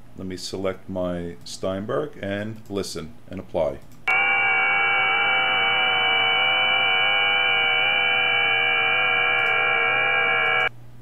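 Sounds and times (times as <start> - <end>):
digital signal tones: 4.1 - 10.7.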